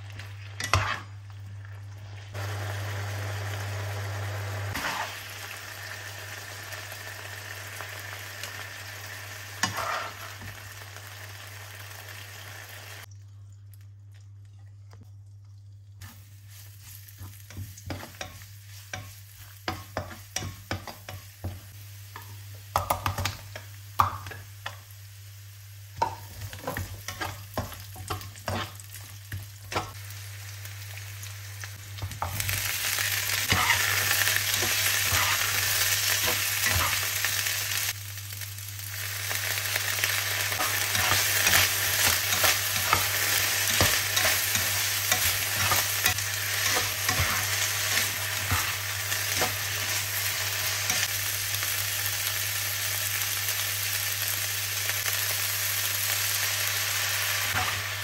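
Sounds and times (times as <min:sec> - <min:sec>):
vegetables sizzling in hot oil: 0:00.0 - 0:13.1, 0:16.0 - 0:58.0
spatula scraping a wok: 0:00.6 - 0:01.1, 0:04.7 - 0:05.2, 0:09.6 - 0:10.5, 0:26.5 - 0:28.8, 0:33.4 - 0:37.0, 0:40.5 - 0:51.1.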